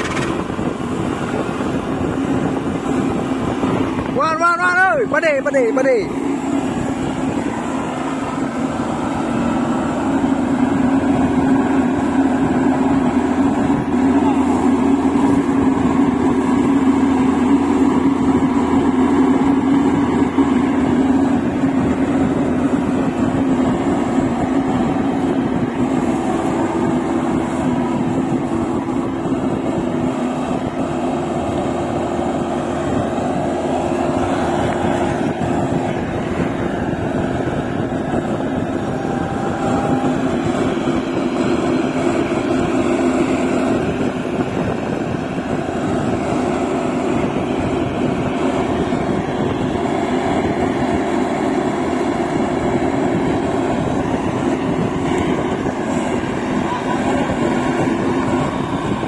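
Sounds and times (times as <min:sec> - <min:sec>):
harvester engine running under load: 0:00.0 - 0:59.0.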